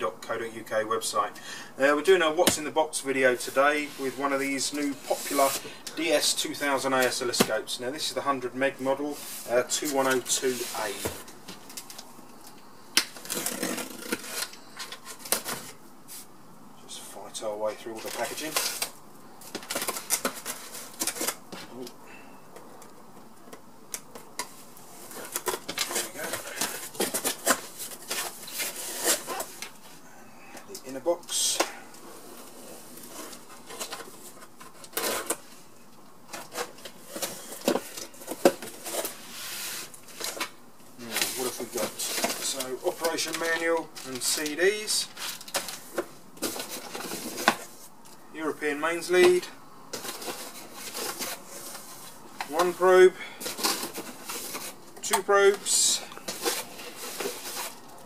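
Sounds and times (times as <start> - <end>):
cardboard scraping and rustling: 3.4 - 5.8, 8.7 - 11.8, 13.1 - 16.3, 24.5 - 29.8, 36.3 - 47.9, 49.2 - 58.0
cardboard box rustling and scraping: 56.3 - 57.8.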